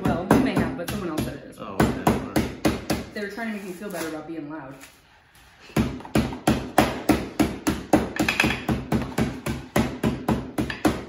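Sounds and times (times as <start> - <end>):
rolling pin pounding candy: 5.8 - 11.0.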